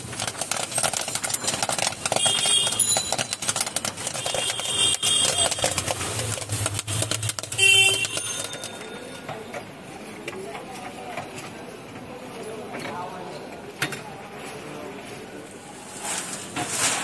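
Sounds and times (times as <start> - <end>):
popcorn popping: 0.0 - 9.8.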